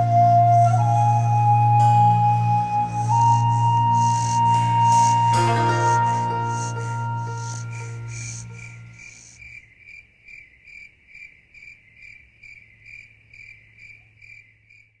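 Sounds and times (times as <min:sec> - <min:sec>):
music: 0:00.0 - 0:09.3
cricket chirping: 0:00.0 - 0:15.0.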